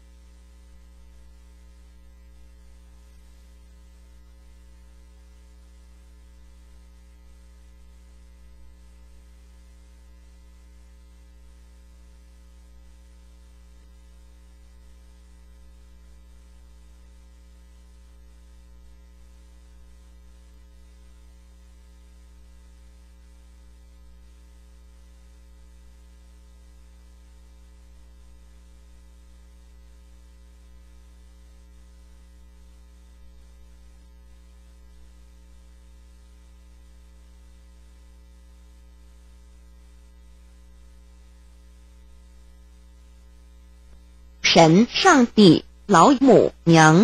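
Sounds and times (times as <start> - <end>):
electrical mains hum: 36.8 - 47.0.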